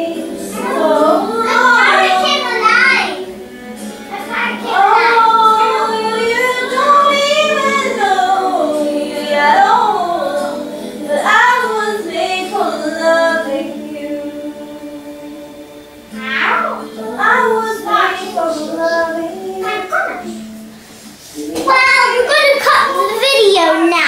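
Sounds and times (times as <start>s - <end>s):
child singing: 0.0s - 3.4s, 4.1s - 15.4s, 16.2s - 20.5s, 21.4s - 24.0s.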